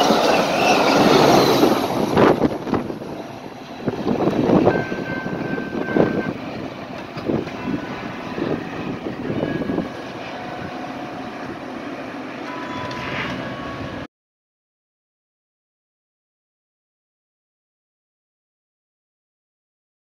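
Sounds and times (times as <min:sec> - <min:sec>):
train passing at speed: 0:00.0 - 0:14.1
train wheels rumbling on rails: 0:00.0 - 0:14.1.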